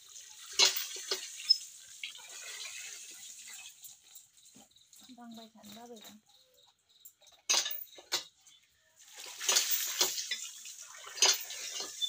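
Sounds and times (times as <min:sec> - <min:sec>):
running water splashing on chicken: 0:00.0 - 0:05.1, 0:09.0 - 0:12.0.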